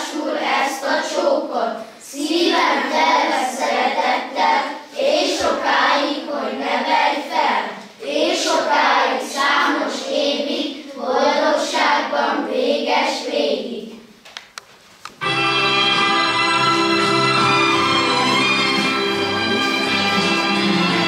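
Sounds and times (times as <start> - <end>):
children's choir singing: 0.0 - 14.1, 15.5 - 21.0.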